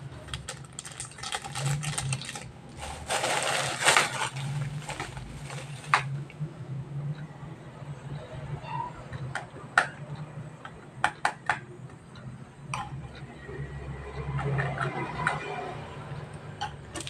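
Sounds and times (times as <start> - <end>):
foil sachet crinkling: 0.3 - 6.1
plastic bag crinkling: 0.3 - 6.2.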